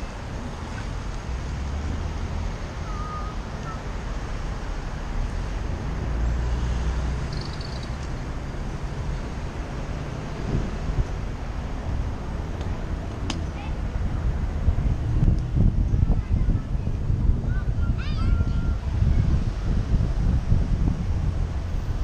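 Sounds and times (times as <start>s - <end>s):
car engines idling and moving: 0.0s - 22.0s
wind buffeting microphone: 7.1s - 22.0s.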